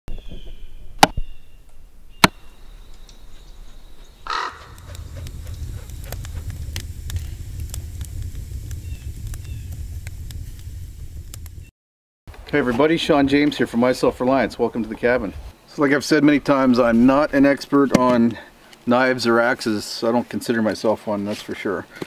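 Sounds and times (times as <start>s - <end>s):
crow cawing: 4.2s - 4.9s
steady low rumble: 4.2s - 11.7s.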